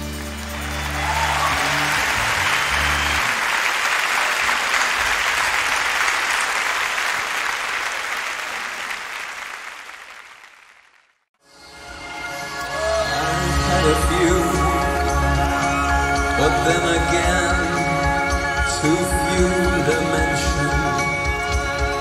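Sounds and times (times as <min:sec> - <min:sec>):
crowd cheering and applauding: 0:00.0 - 0:11.2, 0:12.5 - 0:22.0.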